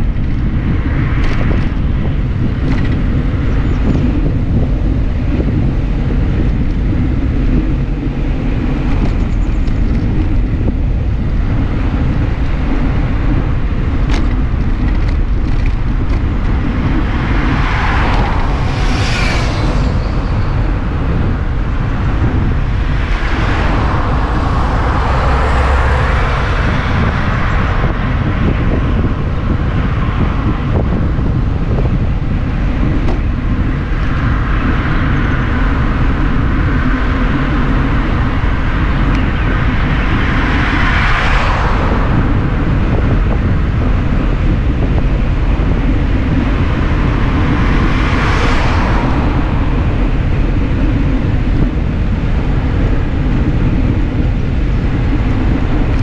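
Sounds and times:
wind buffeting microphone: 0.0s - 56.0s
car passing: 10.6s - 53.0s.

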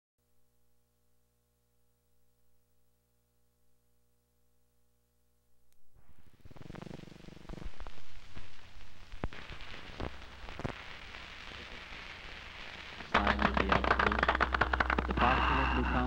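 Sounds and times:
film hiss and crackle: 5.6s - 16.0s.

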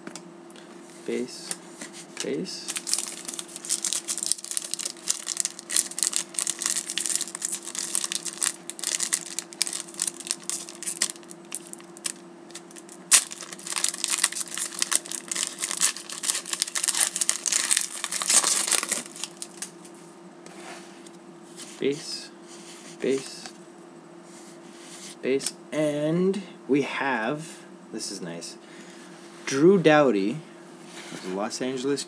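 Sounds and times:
foil wrapper crinkling and tearing: 2.7s - 19.7s.

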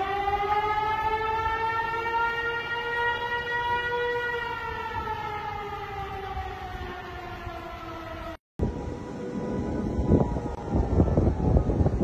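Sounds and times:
warning siren falling tone: 0.0s - 12.0s
low rumbling noise: 8.6s - 12.0s.

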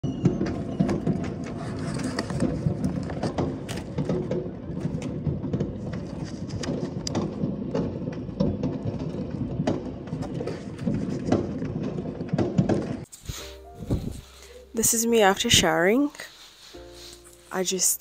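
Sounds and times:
fireworks pops and crackles: 0.1s - 14.3s
fireworks sharp bangs: 0.1s - 14.4s.

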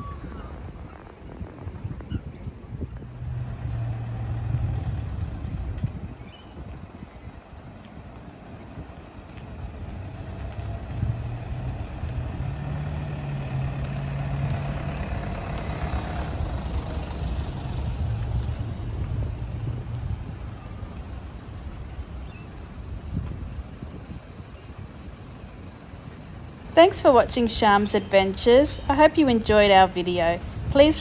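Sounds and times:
vehicle engine passing slowly: 0.5s - 31.0s.

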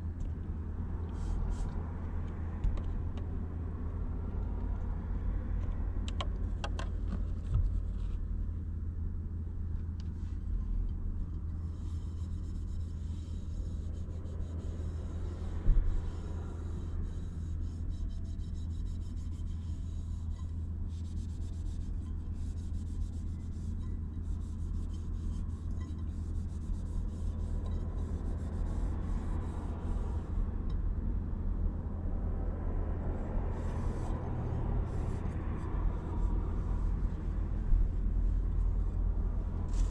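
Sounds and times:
steady low hum: 0.0s - 39.9s
scratchy rubbing strokes: 11.7s - 30.4s.

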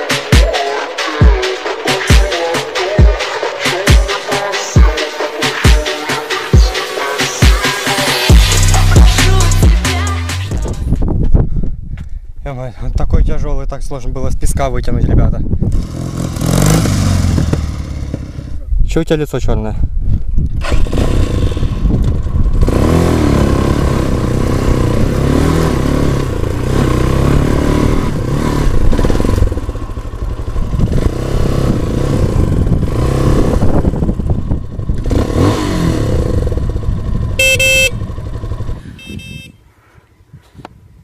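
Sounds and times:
motorcycle engine revving: 15.6s - 18.7s, 20.6s - 39.5s.

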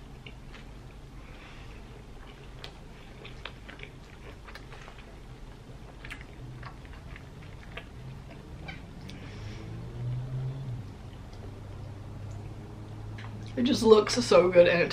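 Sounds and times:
person chewing: 0.0s - 10.2s, 10.8s - 13.6s.

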